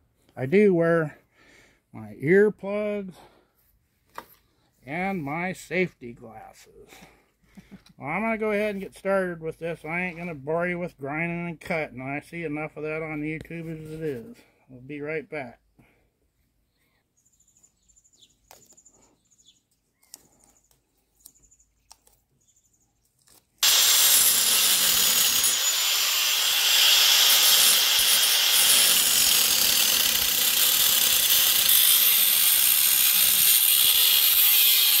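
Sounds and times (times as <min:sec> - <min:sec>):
angle grinder cutting steel: 0:23.6 - 0:35.0.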